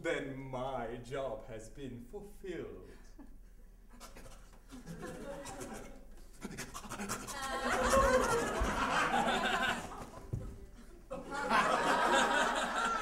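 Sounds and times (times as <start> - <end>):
audience laughing: 4.7 - 6.0, 7.0 - 13.0.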